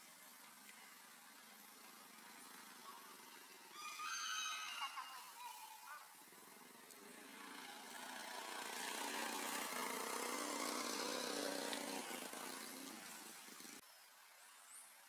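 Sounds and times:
small engine running: 0.8 - 3.9, 6.1 - 13.8.

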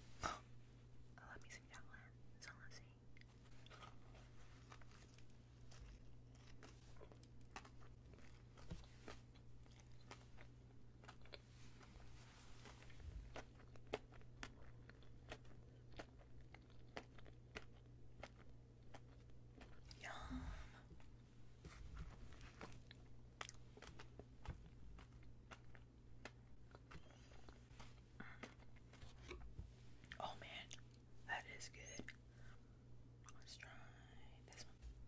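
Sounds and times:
chewing donut with crunches: 3.2 - 20.0, 22.1 - 29.4.

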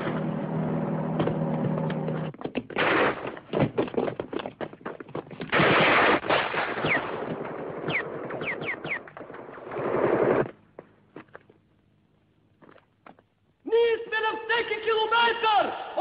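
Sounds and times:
rapid crackling gunfire: 2.8 - 3.5, 5.5 - 10.4.

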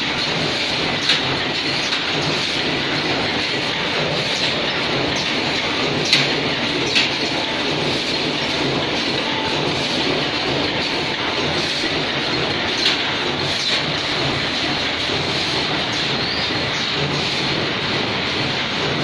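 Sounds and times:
machinery clatter and hum: 0.0 - 19.0.

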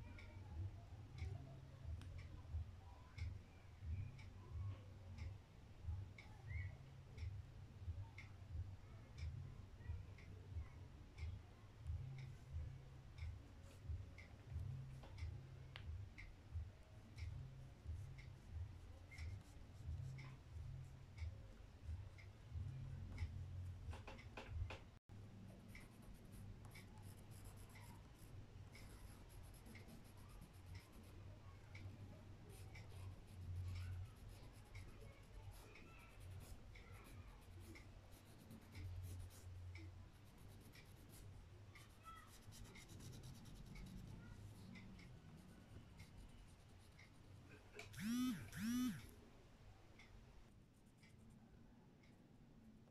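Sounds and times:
low steady hum: 0.0 - 52.9
light ticks: 25.7 - 31.1, 31.7 - 49.1
pastel scratching on paper: 41.8 - 44.4.

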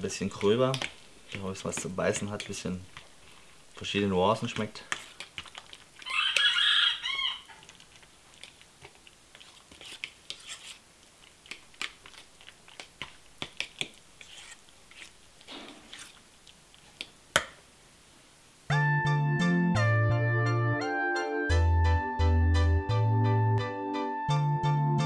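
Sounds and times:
fork scraping metal bowl: 4.8 - 5.3, 9.4 - 10.8, 14.2 - 16.2.

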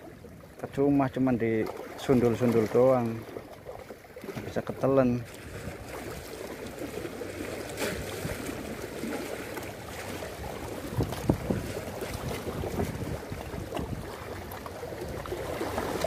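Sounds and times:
waves lapping against rocks: 0.0 - 16.0
wind on microphone: 10.2 - 16.0.

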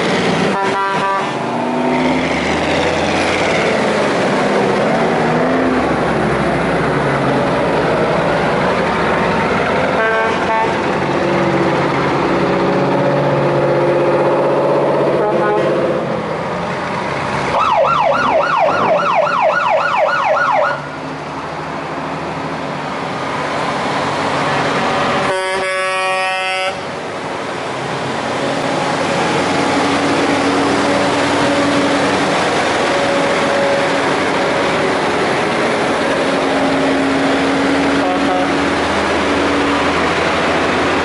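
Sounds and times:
heavy truck engines: 0.0 - 41.0
road noise: 0.0 - 41.0
truck air horn: 0.4 - 1.5, 10.0 - 10.8, 15.1 - 16.0, 25.0 - 27.0, 37.9 - 38.7
fire engine siren wailing: 17.5 - 21.0, 29.4 - 41.0.

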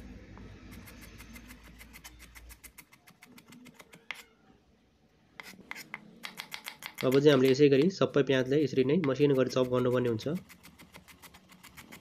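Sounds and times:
knife chopping on wooden board: 5.4 - 7.9.

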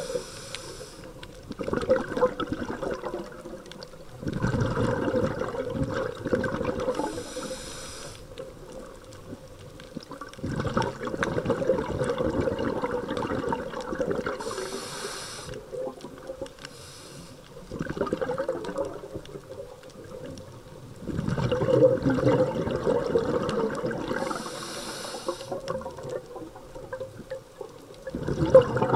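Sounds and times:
regulator hissing inhale: 0.0 - 1.2, 7.0 - 8.4, 14.4 - 15.7, 16.6 - 17.6, 24.2 - 25.6
bubbling exhaust: 10.1 - 15.5, 21.1 - 26.4, 28.1 - 28.9.

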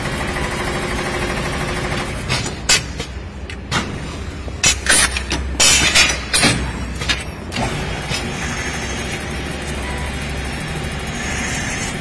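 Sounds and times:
lathe humming and hissing: 7.8 - 12.0.

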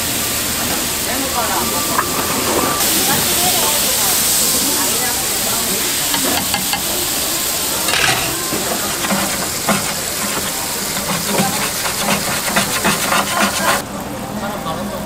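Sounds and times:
fat sizzling and popping: 4.2 - 13.8.

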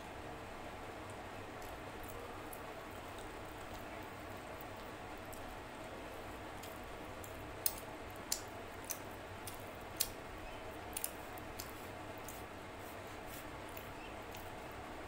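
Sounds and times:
low background noise: 0.0 - 15.0
fingers squishing rice on plate: 6.6 - 15.0.

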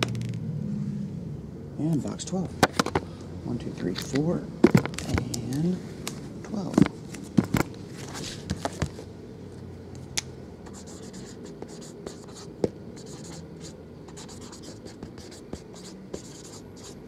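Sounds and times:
marker pen scratching on cardboard: 10.7 - 17.0.

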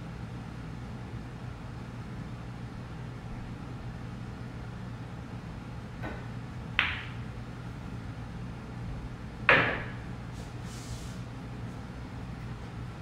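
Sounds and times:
cue tip tapping ball: 6.0 - 7.3, 9.5 - 10.1
pool balls clicking: 6.0 - 7.3, 9.5 - 10.1
ringing ball clack: 6.8 - 7.2.

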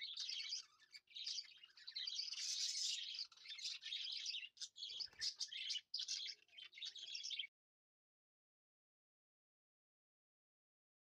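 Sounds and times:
small birds chirping: 0.0 - 7.5.

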